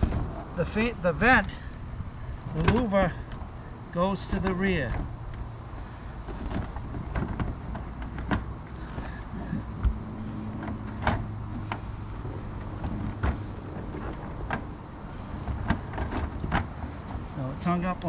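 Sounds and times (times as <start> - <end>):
plastic housing knocking and scraping: 6.2 - 14.8, 15.4 - 17.3.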